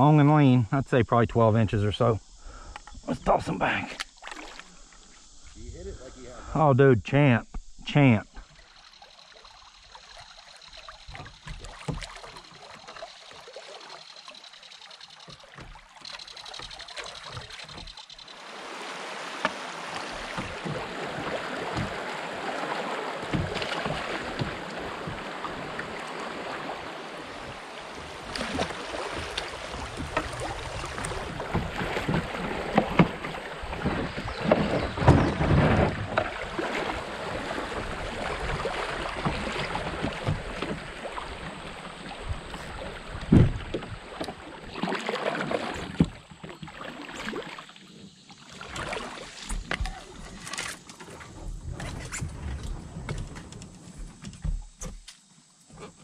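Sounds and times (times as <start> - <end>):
knocks from kayak hull or paddle: 11.0 - 13.2, 15.2 - 18.1, 19.2 - 46.7, 48.8 - 56.0
water rushing over gravel: 18.3 - 44.3.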